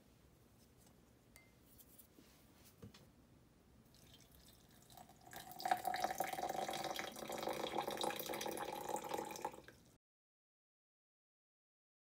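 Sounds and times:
water pouring into a glass: 3.9s - 9.9s.

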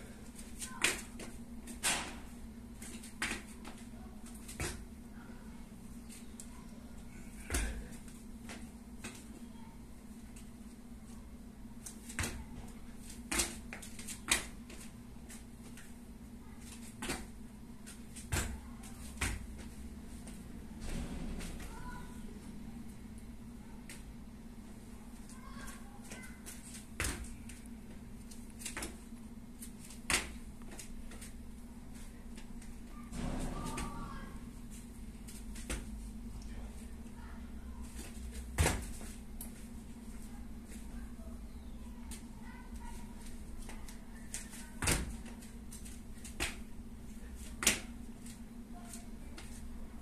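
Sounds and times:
steady low hum: 0.0s - 50.0s
feet landing on wooden floor: 38.3s - 39.2s.

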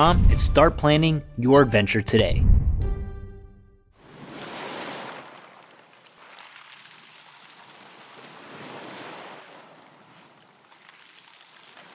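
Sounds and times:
ocean waves rushing: 4.0s - 6.5s, 7.6s - 10.4s.

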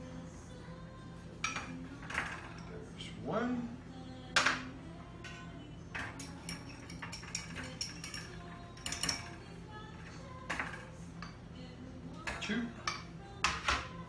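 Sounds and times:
knife clinking on ceramic: 6.0s - 9.4s.

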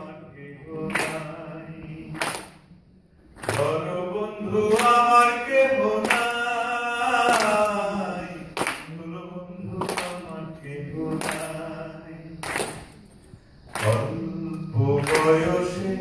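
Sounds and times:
man singing into microphone: 0.0s - 2.3s, 3.5s - 12.5s, 13.7s - 16.0s
hand claps: 0.8s - 1.4s, 2.0s - 2.7s, 3.3s - 3.8s, 4.6s - 5.2s, 5.9s - 6.4s, 7.2s - 7.8s, 8.5s - 9.0s, 9.6s - 10.4s, 11.0s - 11.7s, 12.4s - 15.6s.

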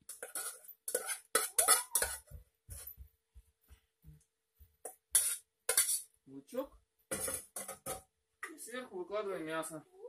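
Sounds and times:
spoon scraping a metal mug: 0.0s - 2.2s, 5.2s - 6.1s.

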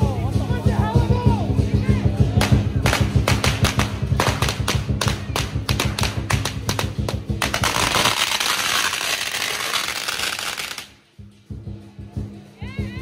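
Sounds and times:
lion dance drumming: 0.0s - 13.0s
firecrackers popping: 2.3s - 11.1s.

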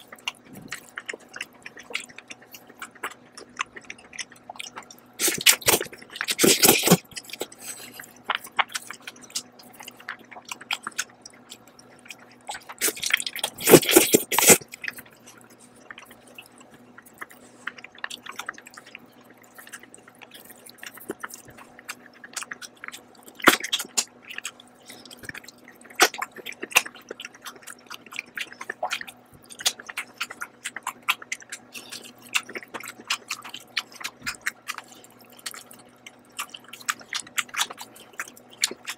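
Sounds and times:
chewing: 0.0s - 38.9s
noodles slurped: 0.3s - 9.5s, 12.1s - 16.6s.

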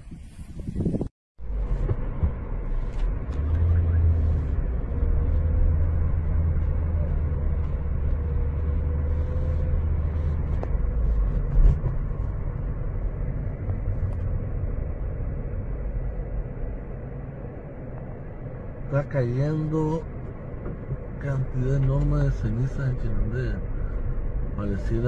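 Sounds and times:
car engine and tyres rumbling: 0.0s - 25.0s.

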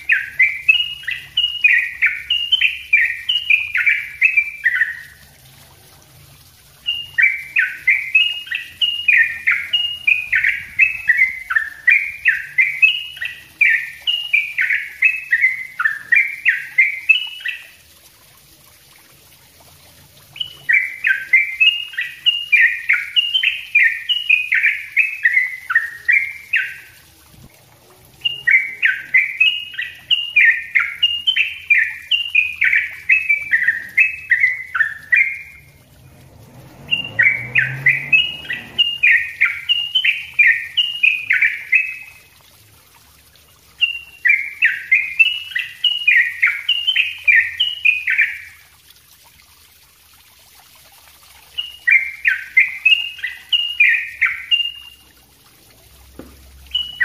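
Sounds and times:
bird chattering song: 0.0s - 5.2s, 6.8s - 17.8s, 20.3s - 27.0s, 28.2s - 35.8s, 36.9s - 42.3s, 43.8s - 48.5s, 51.5s - 55.0s, 56.7s - 57.0s.

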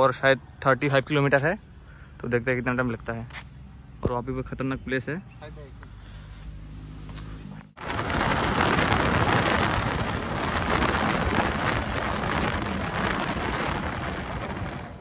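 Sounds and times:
wind rushing over microphone: 7.8s - 15.0s.

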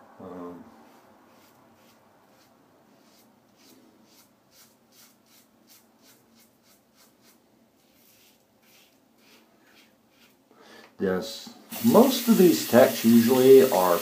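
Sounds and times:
razor scraping stubble: 0.8s - 10.4s.

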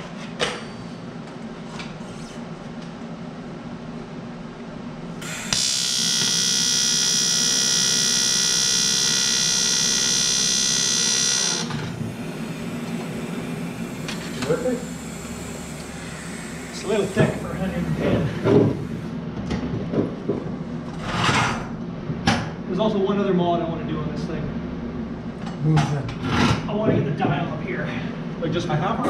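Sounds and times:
welder arc buzzing: 5.1s - 19.1s.

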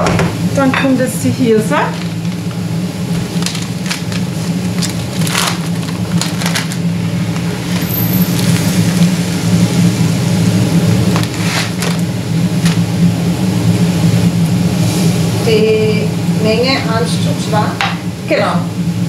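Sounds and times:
low mechanical hum: 0.0s - 19.0s
paper bag rustling: 1.8s - 9.2s, 11.1s - 13.0s.

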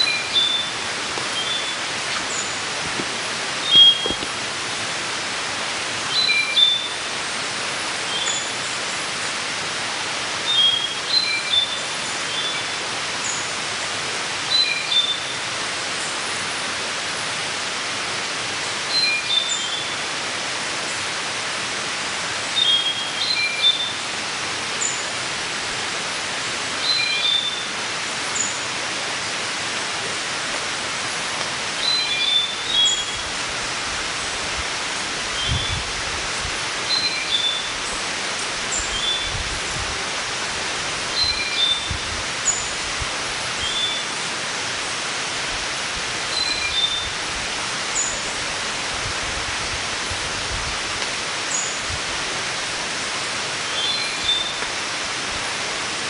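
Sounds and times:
bird chirping: 0.0s - 2.7s, 3.6s - 4.3s
forest hiss: 0.0s - 56.0s.

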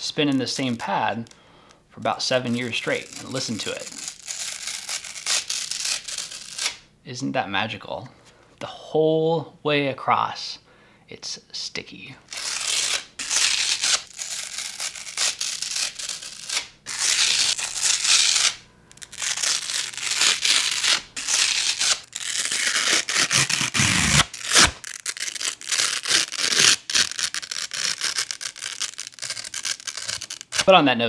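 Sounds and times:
hook-and-loop ripping tear: 0.0s - 1.4s, 2.1s - 6.8s, 12.2s - 30.8s.

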